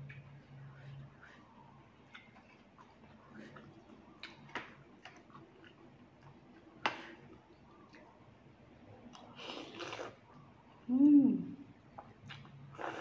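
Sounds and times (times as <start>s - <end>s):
slurping noodles: 9.4s - 10.2s, 12.7s - 13.0s.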